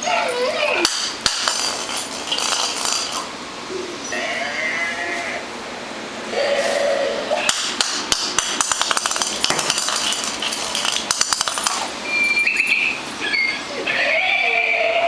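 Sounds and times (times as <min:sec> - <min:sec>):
plastic ball knocking on concrete: 0:00.9 - 0:03.3, 0:07.5 - 0:11.9.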